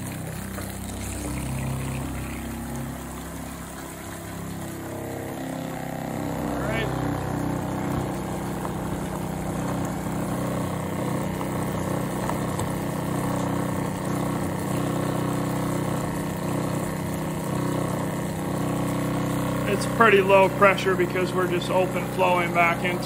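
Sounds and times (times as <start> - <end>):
sprayer pump humming: 0.0 - 23.0.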